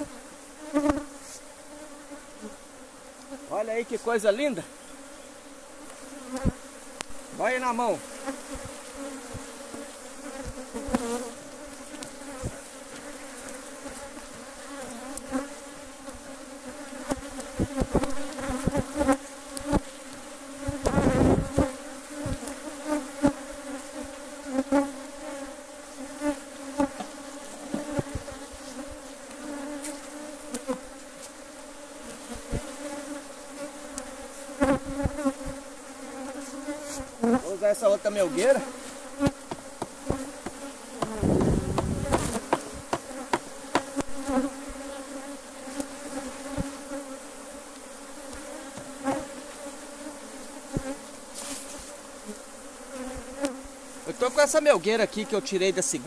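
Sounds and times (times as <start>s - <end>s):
bees buzzing: 0.0s - 56.0s
short knocks: 39.5s - 44.0s.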